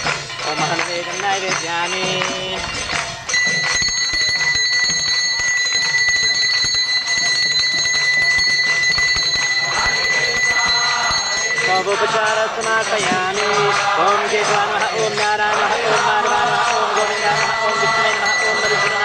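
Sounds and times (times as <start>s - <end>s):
hand bell ringing rapidly: 0.0s - 19.0s
voices chanting: 9.2s - 19.0s.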